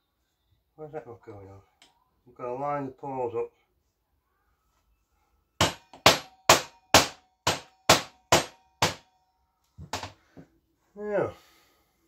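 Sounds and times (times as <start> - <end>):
mallet knocking metal part: 5.6 - 9.0.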